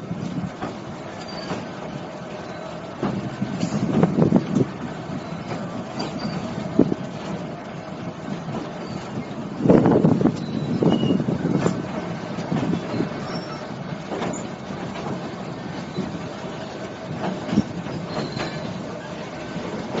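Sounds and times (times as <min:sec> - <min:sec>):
train carriages rattling and rumbling: 0:00.0 - 0:20.0
short high squeaks: 0:01.2 - 0:01.7, 0:05.2 - 0:06.6, 0:10.4 - 0:11.2, 0:12.8 - 0:14.5, 0:18.0 - 0:19.2.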